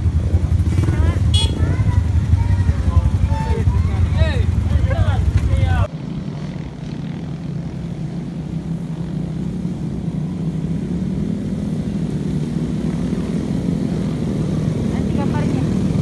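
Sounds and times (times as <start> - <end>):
motorcycles and scooters riding: 0.0 - 16.0.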